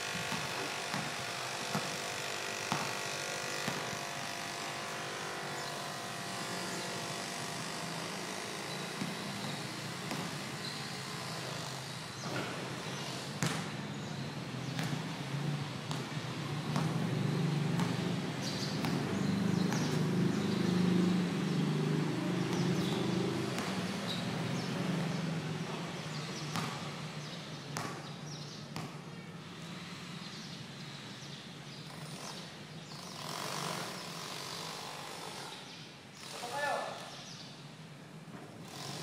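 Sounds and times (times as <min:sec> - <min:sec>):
basketball bouncing on concrete: 0:00.2 - 0:04.4, 0:08.6 - 0:10.8, 0:13.2 - 0:13.9, 0:14.6 - 0:20.8, 0:22.3 - 0:24.8, 0:26.4 - 0:29.2
vehicle engine hum: 0:14.0 - 0:27.4.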